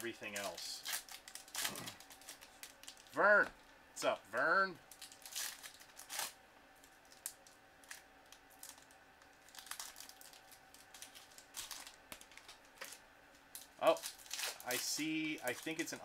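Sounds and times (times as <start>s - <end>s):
cards and foil wrappers rustling: 0.0s - 3.2s, 4.9s - 16.0s.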